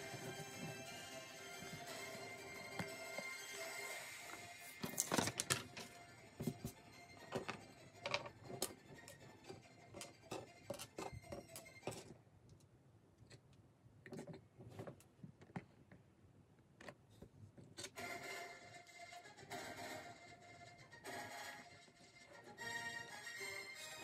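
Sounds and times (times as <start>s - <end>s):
quiet music: 0.0s - 12.2s, 17.9s - 24.0s.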